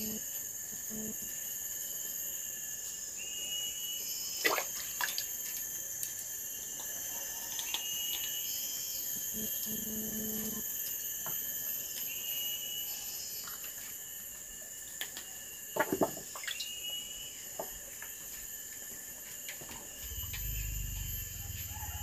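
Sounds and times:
high-pitched insect drone: 0.0 - 22.0.

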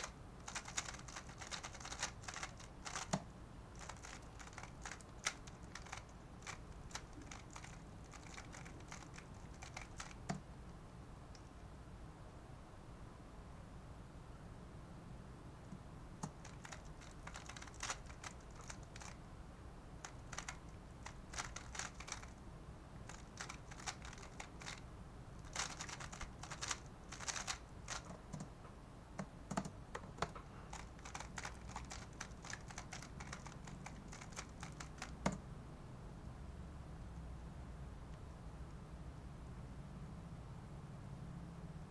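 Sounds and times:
puzzle cube plastic clicking: 0.0 - 10.4, 16.2 - 19.2, 20.0 - 22.4, 23.1 - 24.8, 25.4 - 28.5, 29.2 - 35.4.

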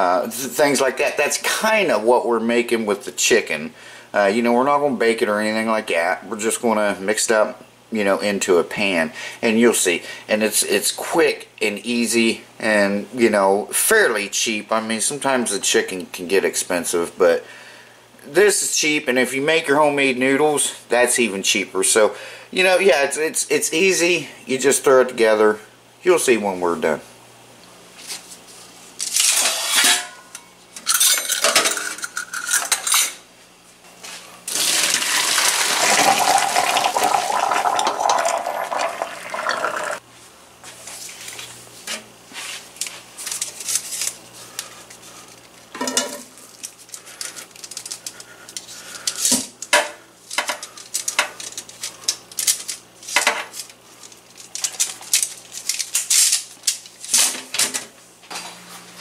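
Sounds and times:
water rushing through strainer: 34.5 - 40.0.

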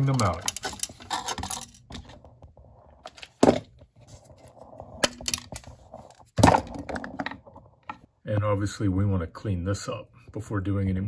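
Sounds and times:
metal clinking and scraping: 0.0 - 2.2.

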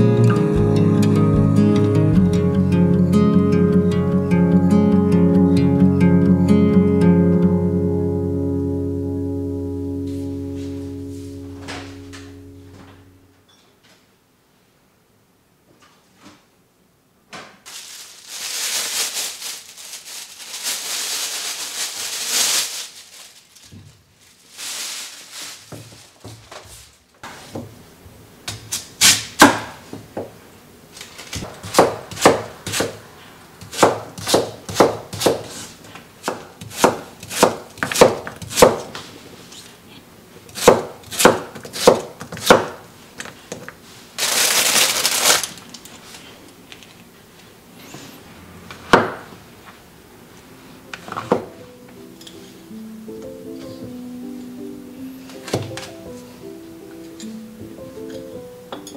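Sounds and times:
steady hissing noise: 14.2 - 37.8, 38.8 - 58.9
knife chopping on wooden board: 31.4 - 33.0, 33.6 - 35.6, 36.2 - 39.0, 40.5 - 42.8.

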